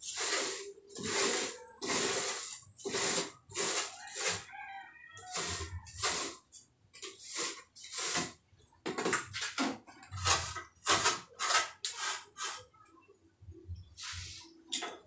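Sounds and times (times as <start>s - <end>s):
trowel scraping wet plaster: 0.0s - 4.5s, 5.2s - 8.4s, 10.1s - 12.7s.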